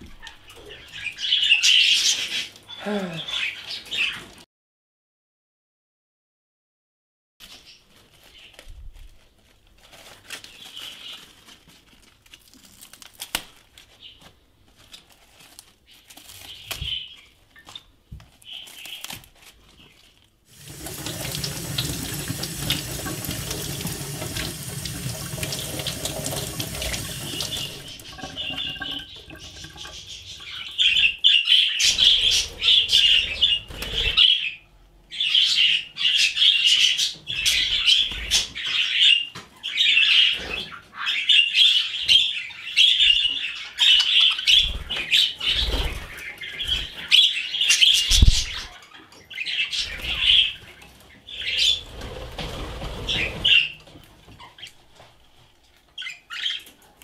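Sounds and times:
budgies chirping: 0:00.1 - 0:04.4, 0:20.6 - 0:55.1, 0:56.0 - 0:56.8
water tap running: 0:20.5 - 0:31.1.

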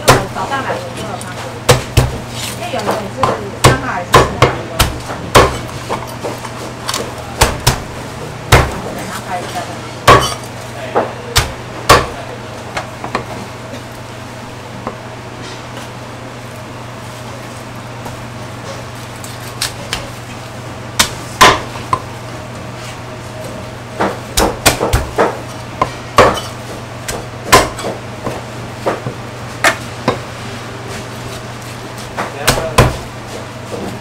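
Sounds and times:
steady low hum: 0:00.0 - 0:34.0
cleaver chopping on wooden block: 0:01.7 - 0:02.2, 0:03.2 - 0:05.6, 0:10.1 - 0:10.4, 0:11.4 - 0:12.2, 0:24.0 - 0:26.5, 0:27.5 - 0:28.0, 0:32.4 - 0:33.0.

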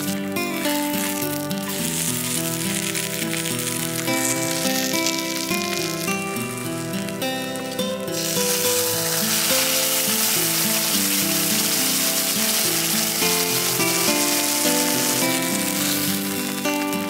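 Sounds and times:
pancake sizzling in a skillet: 0:00.0 - 0:17.0.

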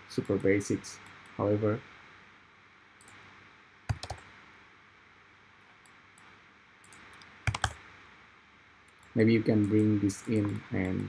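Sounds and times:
faint room hiss: 0:00.0 - 0:11.0
sharp computer clicks: 0:00.2 - 0:01.4, 0:03.0 - 0:03.3, 0:03.9 - 0:04.3, 0:05.8 - 0:07.8, 0:08.8 - 0:11.0.

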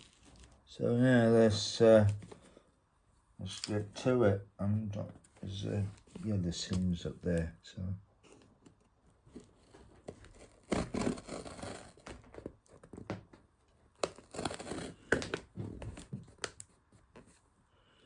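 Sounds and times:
blade cutting packing tape: 0:10.4 - 0:12.2, 0:14.0 - 0:15.4.

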